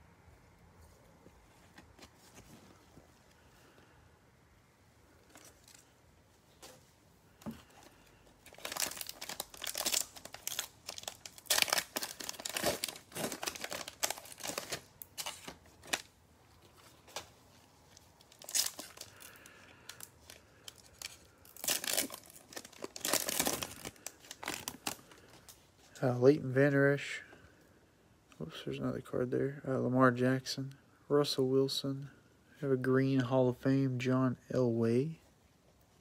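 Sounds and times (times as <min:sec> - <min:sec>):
plastic wrapping tearing and crinkling: 0:08.4 - 0:17.3, 0:17.9 - 0:25.6.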